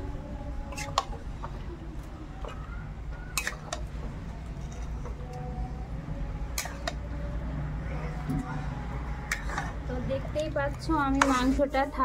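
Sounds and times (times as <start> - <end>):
steady low hum: 0.0 - 12.0
metal ladle clinking and scraping: 3.3 - 3.9, 9.2 - 9.8.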